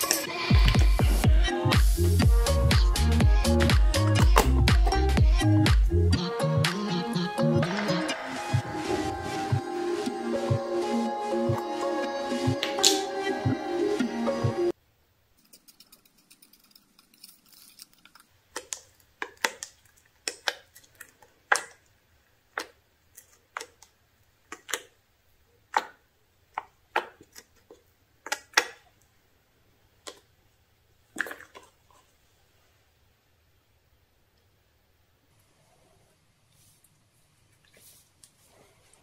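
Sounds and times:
slime clicking and popping: 18.5s - 21.9s, 22.5s - 24.9s, 25.7s - 28.8s.

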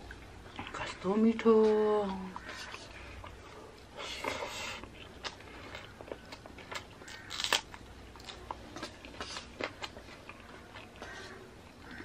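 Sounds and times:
person chewing food: 2.4s - 12.0s
crunch of biting chilli: 4.2s - 12.0s.

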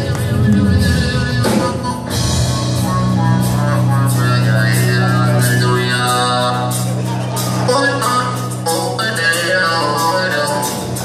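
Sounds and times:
live rock band playing: 0.0s - 11.0s.

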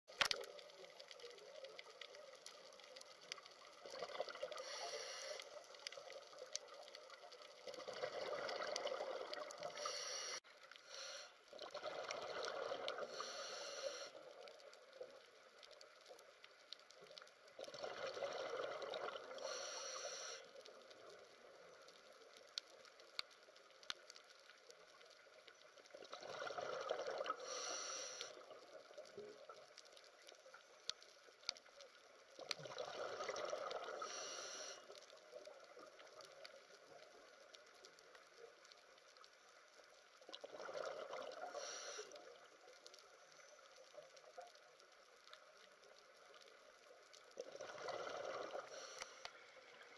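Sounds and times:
faint clicks: 0.1s - 49.9s
diver exhaling bubbles: 47.5s - 48.7s.

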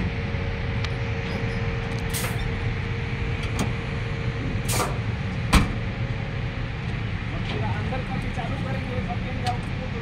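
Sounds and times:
diesel engine idling: 0.0s - 10.0s.

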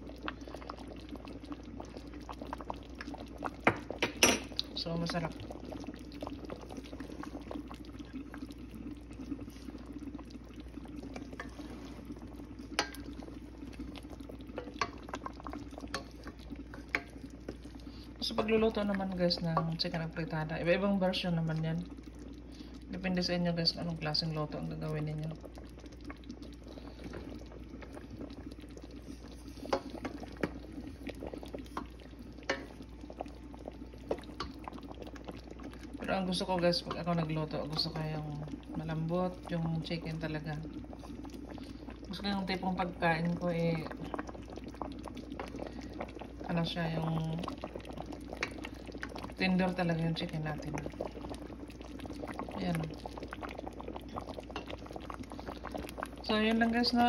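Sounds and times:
stew bubbling in pot: 0.0s - 57.0s
wooden spoon clicking on pot: 16.8s - 17.1s.

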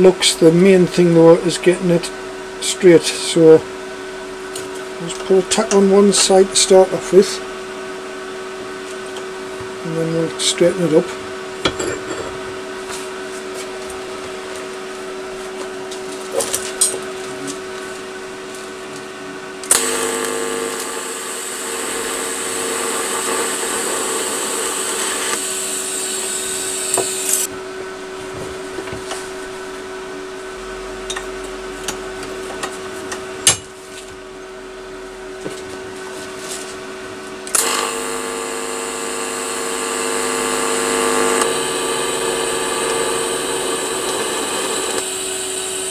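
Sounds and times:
steady machine hum: 0.0s - 45.9s
hissing power tool: 19.6s - 27.5s, 37.5s - 45.9s.

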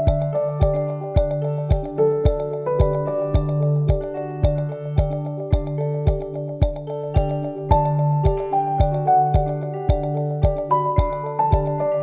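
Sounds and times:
gentle background music: 0.0s - 12.0s.

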